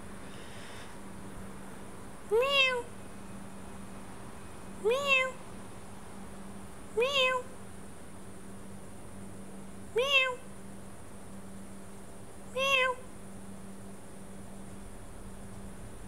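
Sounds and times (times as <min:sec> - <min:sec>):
recorded cat meow: 0:02.3 - 0:02.9, 0:04.8 - 0:05.4, 0:07.0 - 0:07.5, 0:09.9 - 0:10.5, 0:12.5 - 0:13.1.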